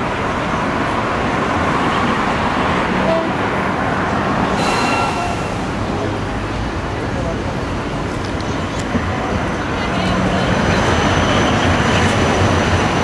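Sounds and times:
street traffic: 0.0s - 13.0s
short high-pitched toot: 4.6s - 5.7s.

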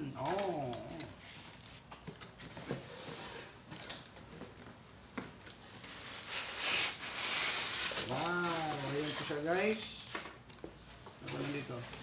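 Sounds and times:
cardboard scraping on cardboard: 6.1s - 9.8s, 11.2s - 12.0s.

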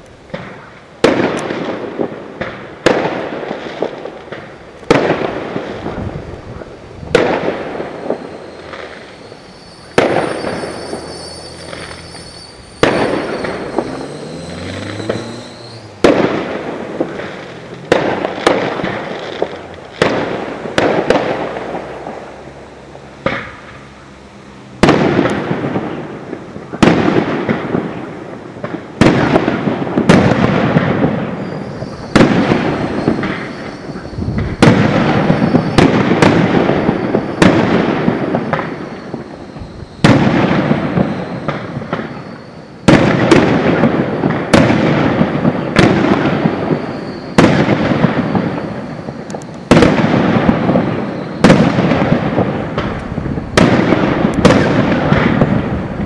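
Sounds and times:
firework crackle: 0.0s - 56.0s
firework shells bursting: 6.6s - 22.5s, 28.6s - 56.0s.

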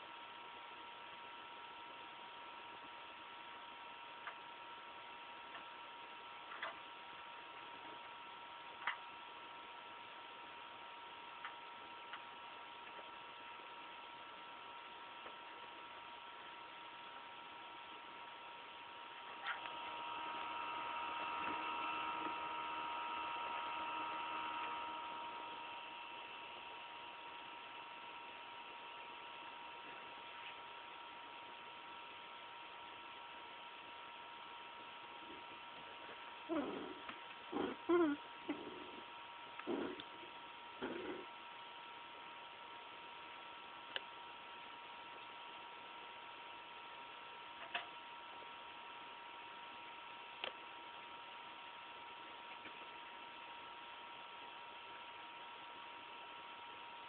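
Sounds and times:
electronic high-pitched whine: 4.2s - 47.3s
high-pitched electronic whine: 19.3s - 30.5s.

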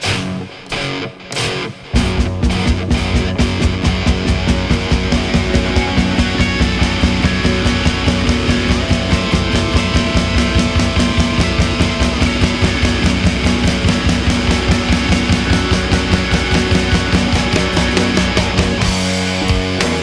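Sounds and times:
blues-rock band playing: 0.0s - 20.0s
steady drum beat: 1.4s - 20.0s.

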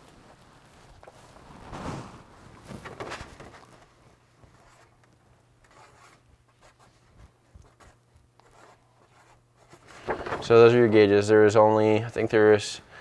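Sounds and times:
marker pen scratching on paper: 5.7s - 7.0s, 7.6s - 9.9s.

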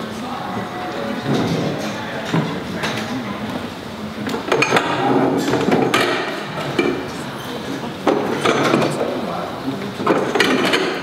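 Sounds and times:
people talking: 0.0s - 5.8s, 6.6s - 10.7s
chairs knocking on hard floor: 4.5s - 7.0s, 10.0s - 11.0s.

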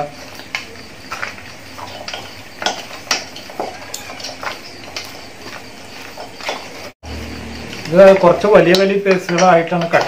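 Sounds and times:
hands mixing chicken in metal bowl: 0.0s - 10.0s
clicks and knocks on metal bowl: 0.3s - 5.6s, 7.7s - 10.0s.

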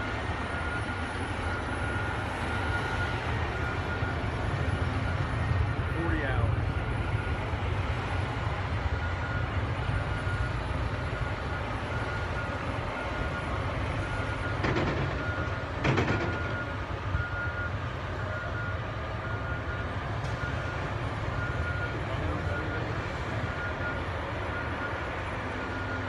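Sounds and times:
diesel engines rumbling: 0.0s - 26.0s
backup alarm beeping: 6.6s - 26.0s.

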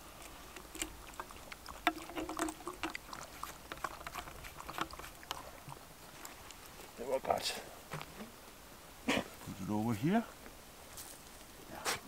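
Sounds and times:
dog lapping water: 0.0s - 5.9s.

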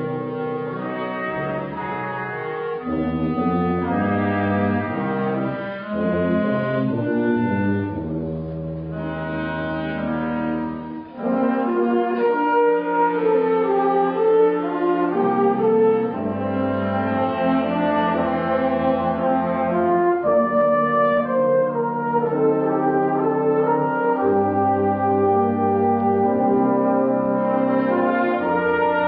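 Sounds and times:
wind band playing chords: 0.0s - 29.0s.

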